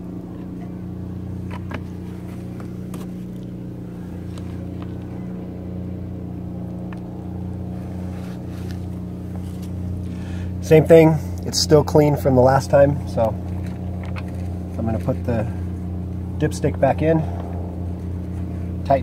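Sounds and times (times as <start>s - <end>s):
engine humming: 0.0s - 19.0s.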